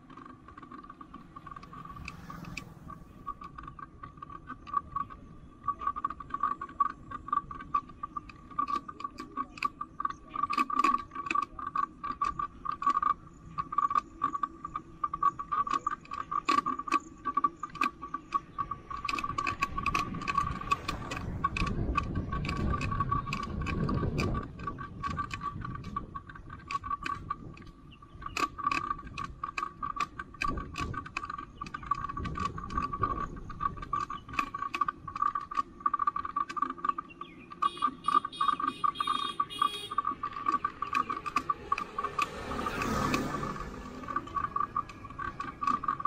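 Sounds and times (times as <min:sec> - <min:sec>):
bicycle ticking and rattling: 0:00.0 - 0:46.0
low rushing noise: 0:01.1 - 0:03.8.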